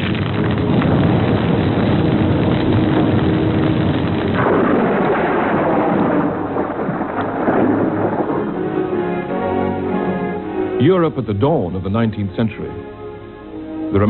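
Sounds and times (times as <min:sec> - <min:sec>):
loud rumbling roar: 0:00.2 - 0:10.0.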